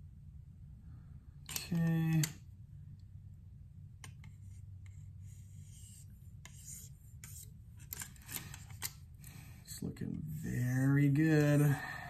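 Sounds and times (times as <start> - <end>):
low steady hum: 0.0 - 12.0
knife scratches and clicks: 4.0 - 9.0.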